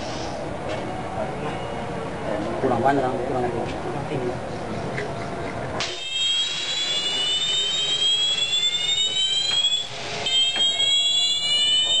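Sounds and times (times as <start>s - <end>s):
fire extinguisher hissing: 0.0s - 0.4s, 5.8s - 12.0s
high rising whistling tones: 5.8s - 12.0s.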